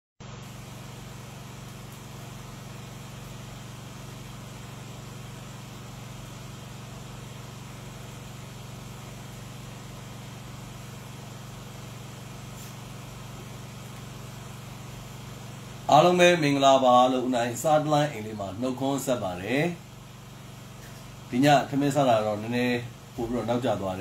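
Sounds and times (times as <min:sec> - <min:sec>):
constant hiss: 0:00.3 - 0:24.0.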